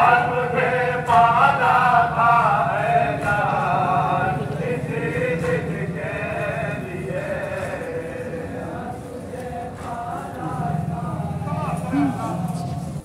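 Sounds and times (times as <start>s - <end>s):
low hum: 0.0s - 13.0s
men chanting a lament: 0.0s - 13.0s.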